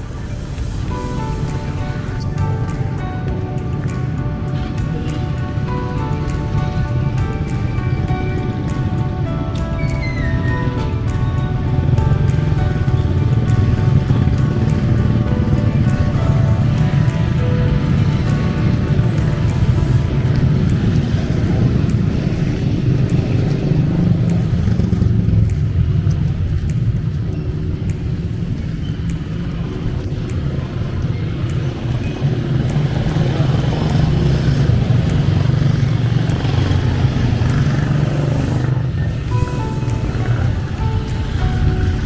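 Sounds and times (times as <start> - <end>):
motorcycles passing: 0.0 - 42.0.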